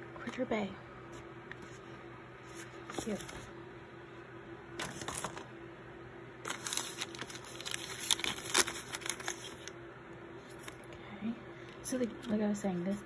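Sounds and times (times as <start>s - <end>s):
foil pouch crinkling: 6.5s - 9.8s.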